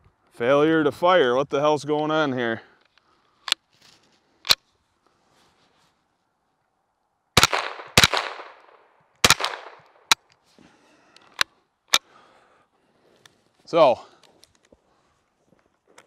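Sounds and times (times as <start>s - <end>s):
rifle shots with echo: 7.4s - 10.2s.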